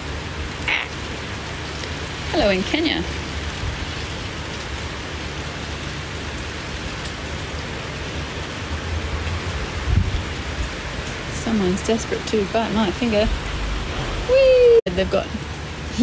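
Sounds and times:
rain falling: 0.0 - 16.0
low rumble: 12.6 - 15.6
dull bump: 13.0 - 14.4.

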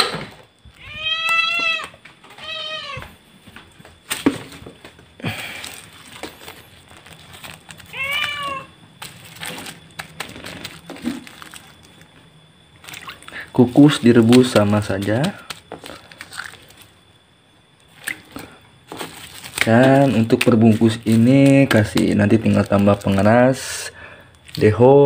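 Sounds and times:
cat meowing: 0.7 - 3.1, 7.9 - 8.7.

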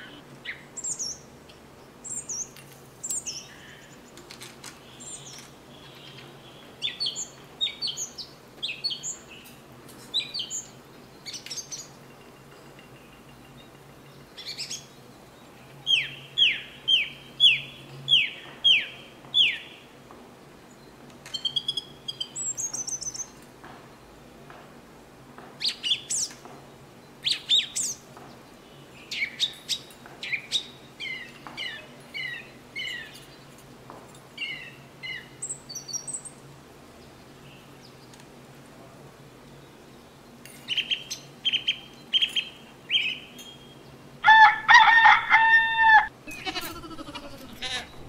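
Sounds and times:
small birds chirping: 0.0 - 24.0, 25.6 - 38.4, 39.4 - 44.1, 46.4 - 48.0.

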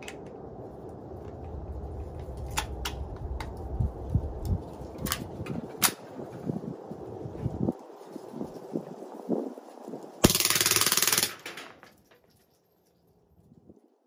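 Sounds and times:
low steady rumble: 0.0 - 5.7
sharp metallic gun clicks: 10.2 - 11.7.

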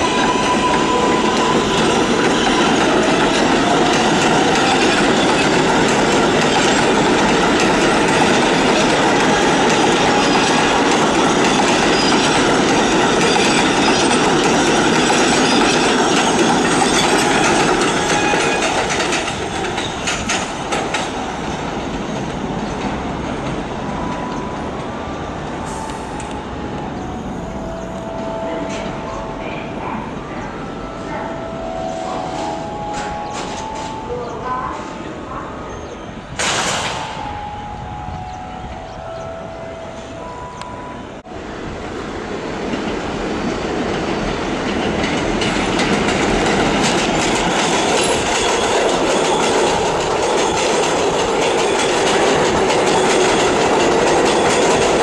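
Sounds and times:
train wheels clattering on rails: 0.0 - 27.0, 32.3 - 34.1, 36.3 - 37.5, 42.5 - 55.0
train whine: 0.0 - 55.0.

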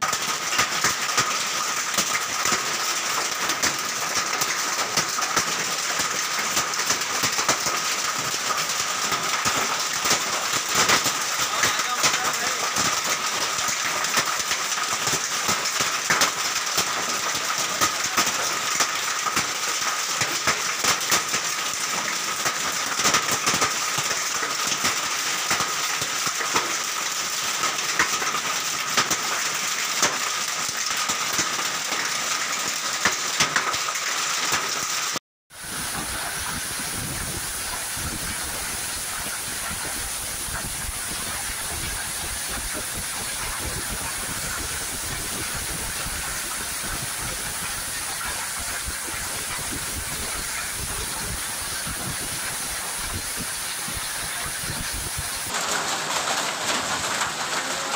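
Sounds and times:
hailstones tapping: 0.0 - 57.9
heavy rain: 0.0 - 57.9
wind rumble on microphone: 35.7 - 55.5.

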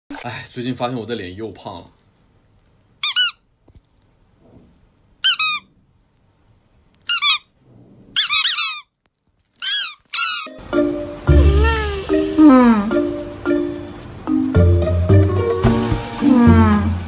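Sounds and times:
squeaky toy squeaking: 3.0 - 3.5, 5.2 - 5.7, 7.1 - 7.6, 8.2 - 9.0, 9.6 - 10.6, 11.3 - 12.1.

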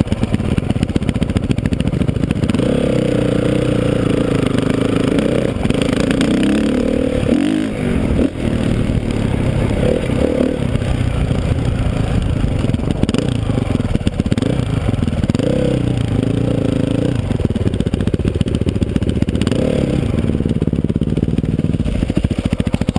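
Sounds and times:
dirt bike engine revving: 0.0 - 22.9.

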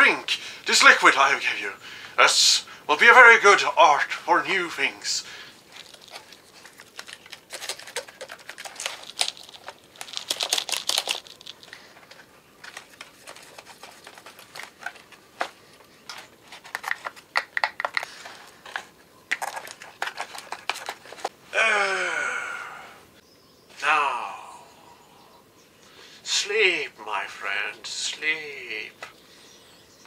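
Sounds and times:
clicking and rustling: 5.7 - 21.3
short voice sound: 21.5 - 23.0.

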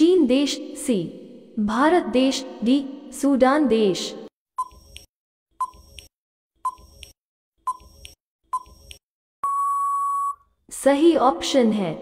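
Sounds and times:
short beeps: 9.4 - 10.4.

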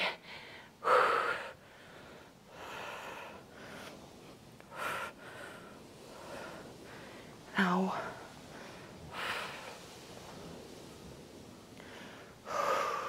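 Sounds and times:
woman breathing hard: 0.0 - 7.4, 8.5 - 10.0, 11.8 - 13.0.

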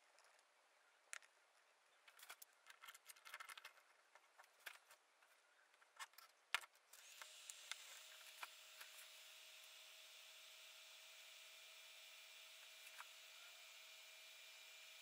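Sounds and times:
faint clicks and taps: 2.0 - 7.8.

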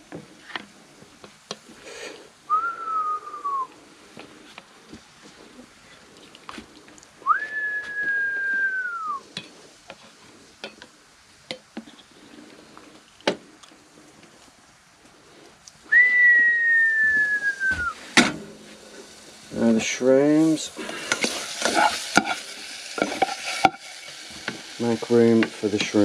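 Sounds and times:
person whistling: 2.5 - 3.7, 7.2 - 9.2, 15.9 - 18.0.

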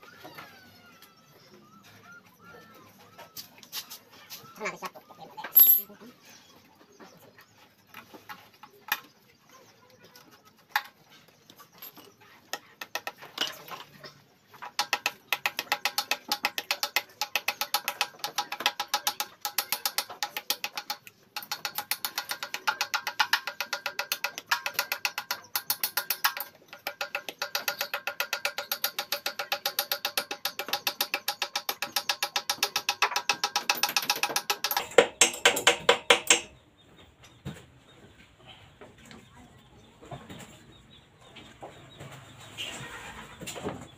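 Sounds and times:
ratchet tool clicking: 14.8 - 36.5.

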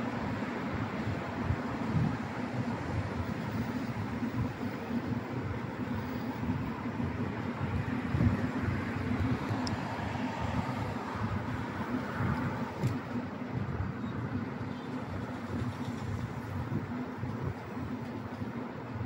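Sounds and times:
passing road vehicles: 0.0 - 19.0.

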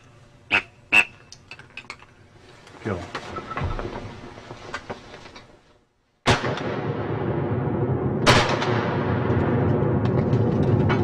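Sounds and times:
shotgun blasts: 6.2 - 7.6, 8.2 - 9.7.

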